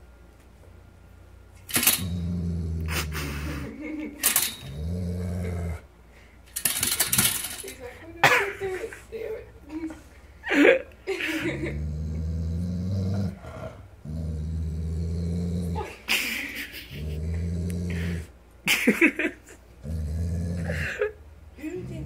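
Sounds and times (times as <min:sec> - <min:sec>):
dog growling low: 0:01.7 - 0:05.9, 0:11.3 - 0:16.1, 0:16.8 - 0:18.4, 0:19.8 - 0:22.0.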